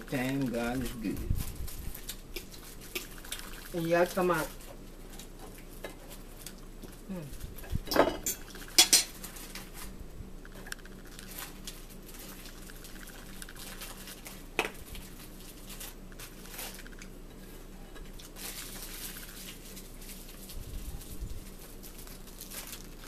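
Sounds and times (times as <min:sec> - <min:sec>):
chicken tearing and squishing: 0:18.2 - 0:23.0.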